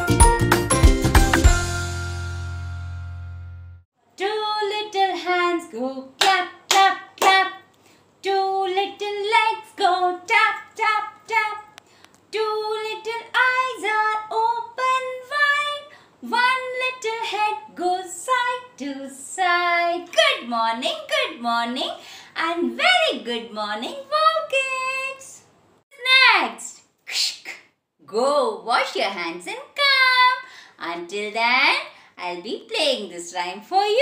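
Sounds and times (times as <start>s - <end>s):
woman singing: 4.2s - 11.7s, 12.3s - 25.4s.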